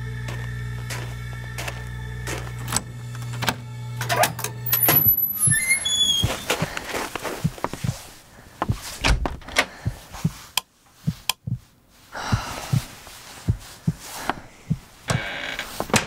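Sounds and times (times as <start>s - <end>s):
door clicks and thuds: 8.6s - 10.0s, 15.1s - 16.0s.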